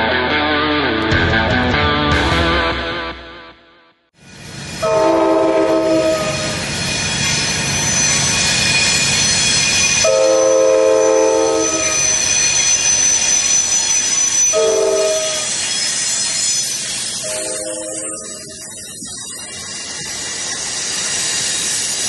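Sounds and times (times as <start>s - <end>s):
train wheels rushing on rails: 4.2s - 22.0s
train air horn blasts: 4.8s - 6.6s, 10.0s - 12.2s, 14.4s - 15.5s, 17.2s - 18.5s.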